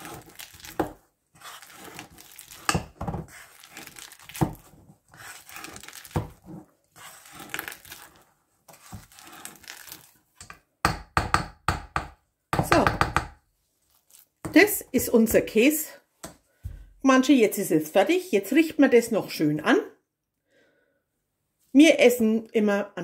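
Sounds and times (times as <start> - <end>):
potato masher mashing and scraping: 0.0 - 10.5.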